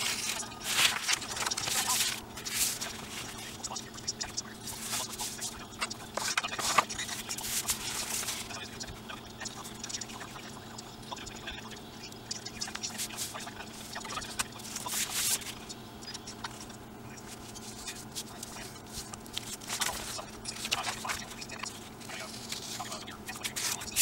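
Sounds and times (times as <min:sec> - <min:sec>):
paper rustling and crackling: 0:00.0 - 0:03.6, 0:04.6 - 0:08.6, 0:14.3 - 0:15.6, 0:17.3 - 0:24.0.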